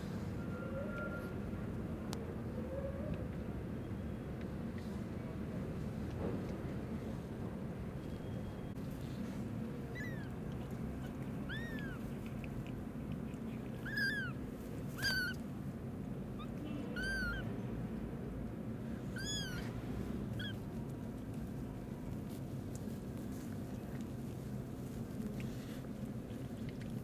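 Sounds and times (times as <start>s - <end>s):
kittens mewing: 9.8s - 15.4s, 16.3s - 17.5s, 19.0s - 20.6s.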